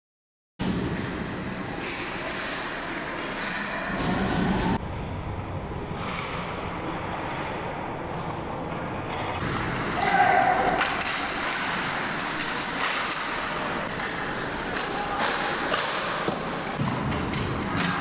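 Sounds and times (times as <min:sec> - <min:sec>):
hockey sticks and puck clacking: 0:01.8 - 0:04.4, 0:09.4 - 0:18.0
skates scraping ice: 0:09.4 - 0:18.0.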